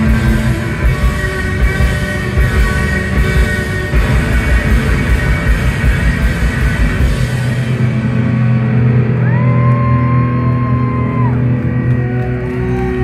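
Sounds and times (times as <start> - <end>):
drums: 0.0 - 13.0
electric guitars ringing chords: 0.0 - 13.0.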